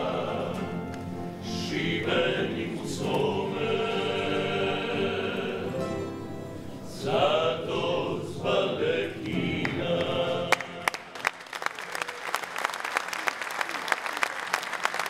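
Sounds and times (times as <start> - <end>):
male vocal group singing: 0.0 - 5.8, 6.9 - 11.0
acoustic guitar: 0.0 - 10.9
audience applause: 10.5 - 15.0.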